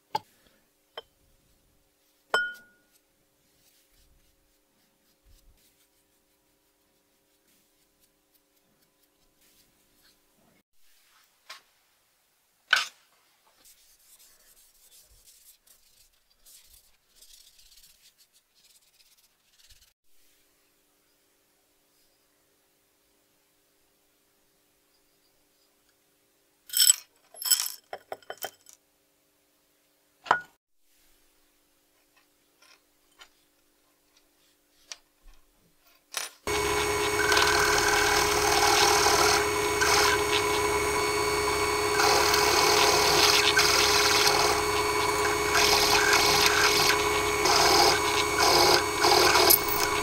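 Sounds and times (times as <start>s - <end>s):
drill press drilling metal: 36.5s - 50.0s.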